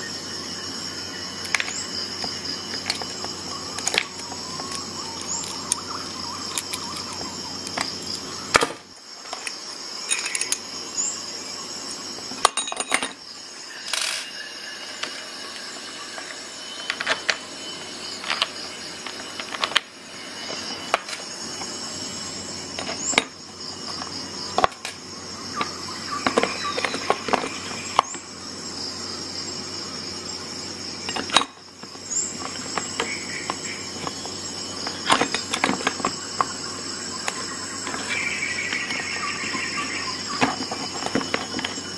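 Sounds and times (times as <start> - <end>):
metal tools clicking and clinking: 10.1 - 10.6, 12.4 - 13.2.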